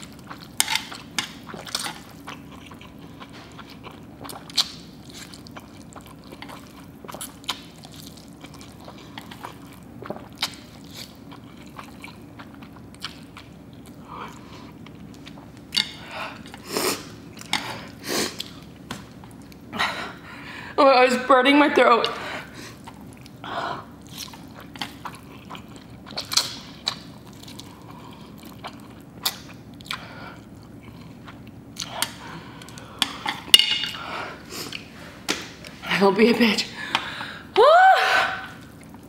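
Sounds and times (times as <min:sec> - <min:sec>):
person slurping and chewing: 0:00.0 - 0:18.6.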